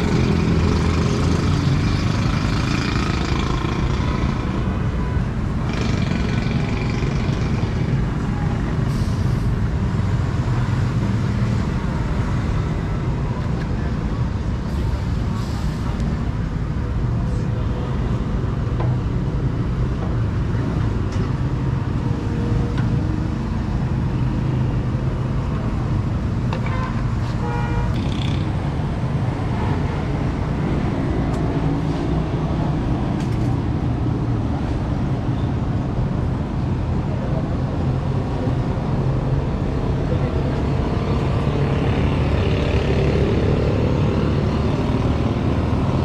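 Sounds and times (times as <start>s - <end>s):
road traffic rumble: 0.0s - 46.0s
vehicle horn toot: 26.6s - 28.0s.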